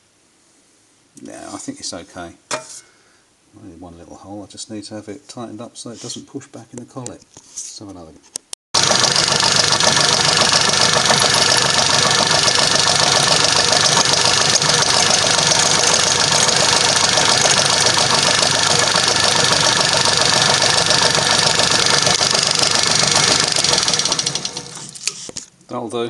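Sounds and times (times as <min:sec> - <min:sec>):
drill boring into steel: 0:08.8 - 0:25.1
lathe running: 0:08.8 - 0:25.2.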